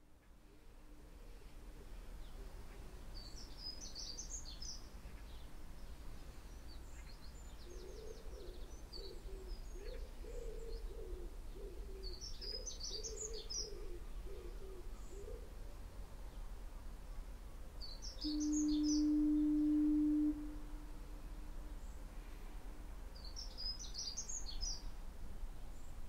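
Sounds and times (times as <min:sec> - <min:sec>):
low repeated bird call: 0:17.8 - 0:22.2
birds twittering: 0:18.0 - 0:19.4.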